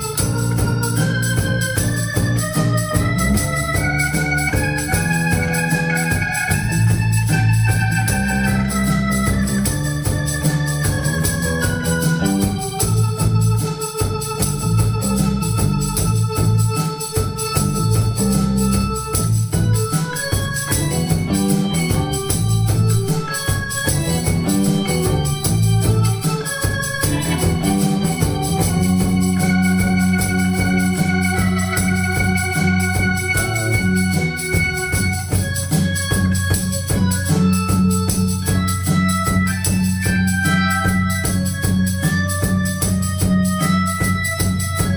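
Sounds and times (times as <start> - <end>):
bass line: 0.0 - 44.9
electric guitar: 0.0 - 44.9
organ-like keyboard chords: 0.0 - 44.9
steady beat: 0.0 - 44.9.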